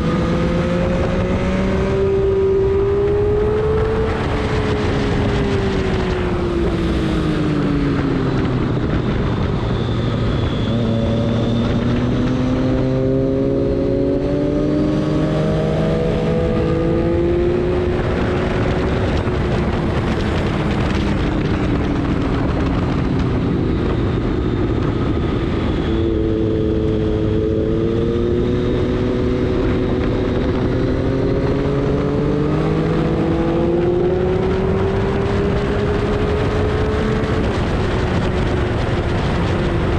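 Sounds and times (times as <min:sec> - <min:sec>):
steady rushing noise: 0:00.0 - 0:39.9.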